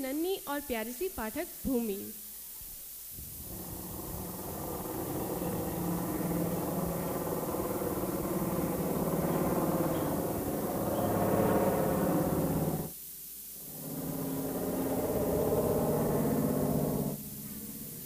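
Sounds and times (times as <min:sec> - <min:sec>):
aeroplane engine over loudspeakers: 0:03.4 - 0:12.9, 0:13.6 - 0:18.0.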